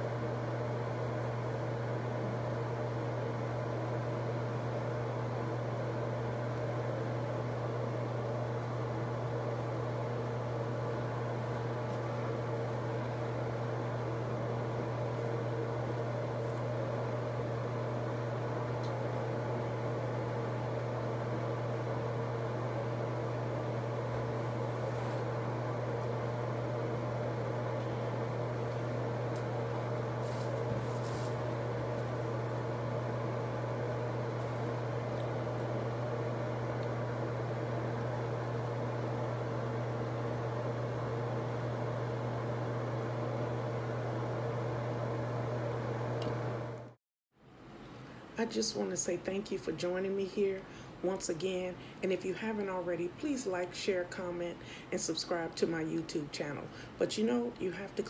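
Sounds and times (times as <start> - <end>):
motor humming: 10.0 - 47.0.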